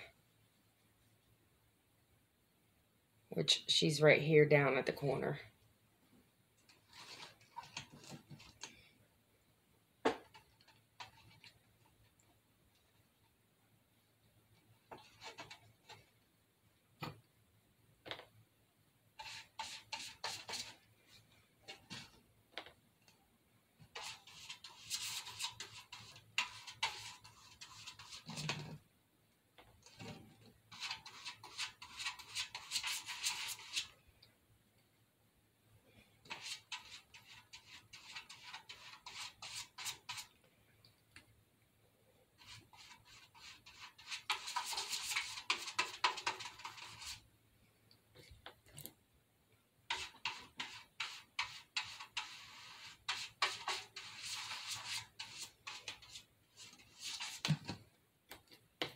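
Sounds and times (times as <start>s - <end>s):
paintbrush scratching on paper: 6.8s - 8.6s, 11.0s - 11.6s, 14.9s - 16.0s, 19.2s - 22.2s, 23.9s - 28.8s, 29.8s - 34.0s, 36.2s - 40.3s, 42.4s - 47.3s, 49.9s - 57.6s.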